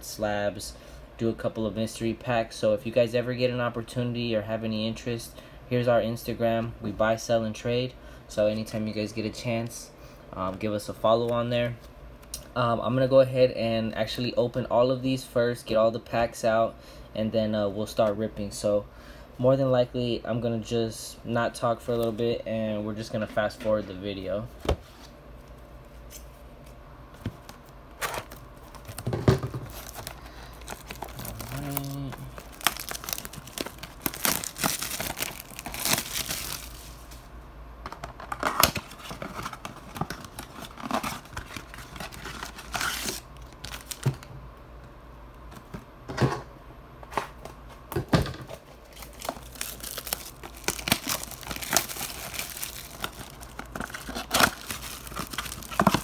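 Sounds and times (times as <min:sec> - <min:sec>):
plastic wrap crinkling: 0:28.0 - 0:37.1, 0:38.3 - 0:44.3, 0:48.8 - 0:56.0
cardboard tearing: 0:29.7 - 0:36.8, 0:38.5 - 0:44.0, 0:49.0 - 0:56.0.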